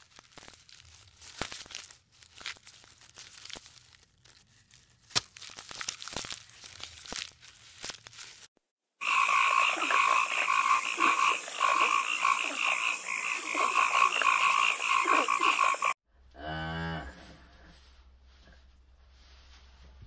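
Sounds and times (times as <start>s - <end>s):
frogs calling in trills: 9.0s - 16.0s
cow mooing: 16.3s - 17.2s.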